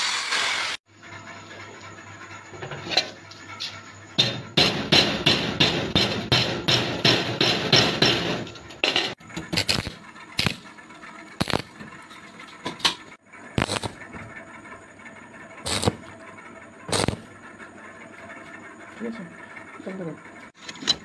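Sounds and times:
hammer striking metal rod: 0:04.2 - 0:10.6.

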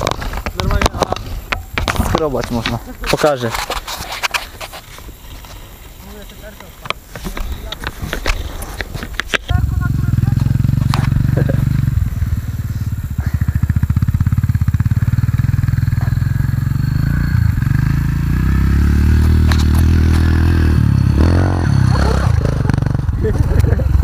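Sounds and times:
dirt bike engine revving: 0:09.5 - 0:24.0.

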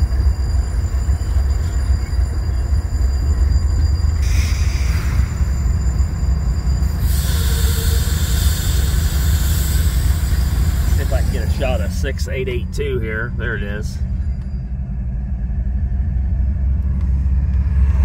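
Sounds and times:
diesel locomotives rumbling: 0:00.0 - 0:18.0
rushing hiss: 0:07.0 - 0:11.8.

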